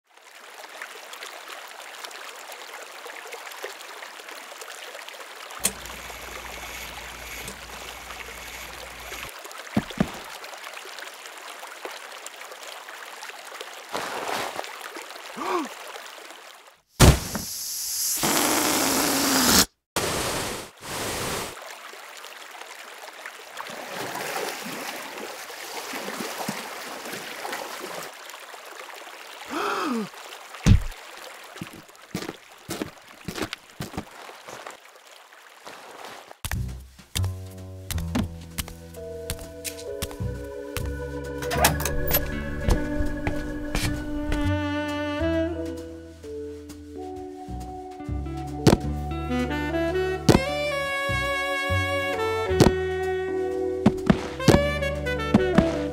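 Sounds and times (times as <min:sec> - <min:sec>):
steady rushing hiss: 0:05.7 - 0:09.3, 0:17.2 - 0:21.6.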